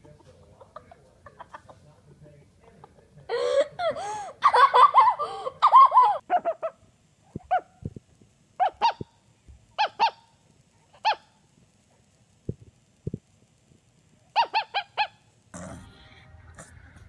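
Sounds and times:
laughter: 0.0s - 1.9s, 2.7s - 6.8s.

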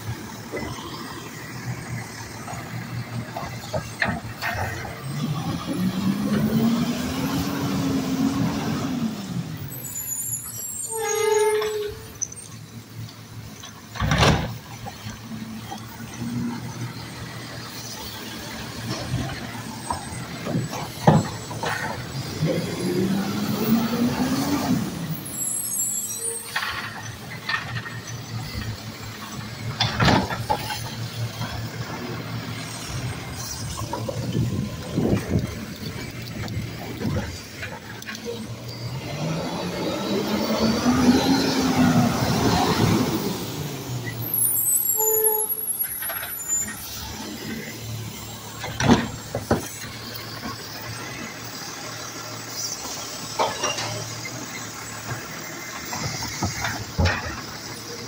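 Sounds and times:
garbage truck engine revving: 0.0s - 10.2s, 14.0s - 25.8s, 26.7s - 44.7s.

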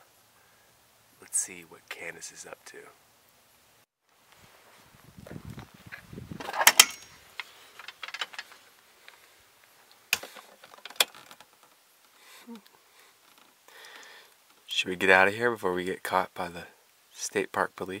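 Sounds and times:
rustling and creaking: 4.2s - 14.7s.

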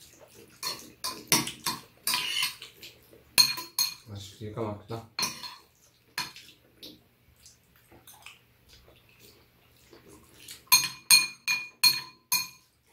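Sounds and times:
metal spoons scraping bowls: 0.6s - 2.7s, 5.2s - 6.4s, 10.7s - 12.7s.

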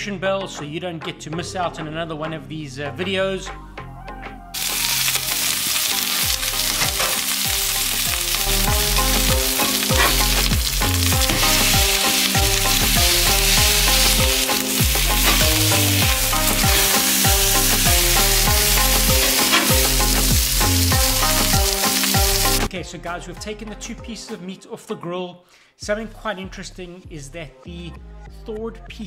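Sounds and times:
background music with bass line: 0.0s - 24.5s, 25.8s - 29.0s
steaks sizzling on griddle: 4.6s - 22.7s.

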